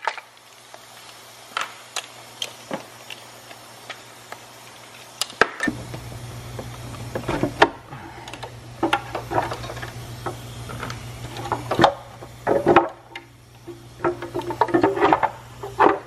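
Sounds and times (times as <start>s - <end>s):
steady low hum: 0.4s - 16.0s
metal engine parts clattering: 7.2s - 10.0s, 10.7s - 16.0s.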